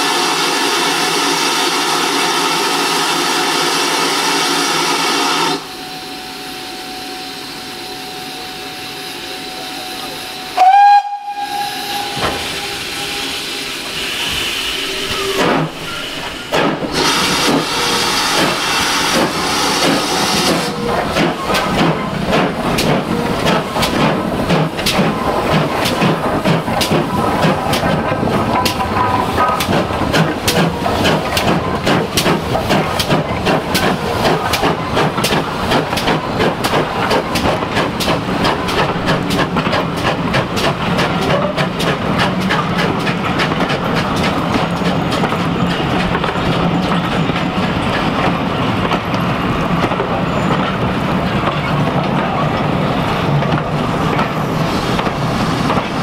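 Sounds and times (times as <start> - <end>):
steam hissing: 0.0 - 5.8, 8.4 - 45.2, 53.8 - 56.0
steam locomotive chuffing: 0.0 - 56.0
steam locomotive whistle: 4.7 - 16.1.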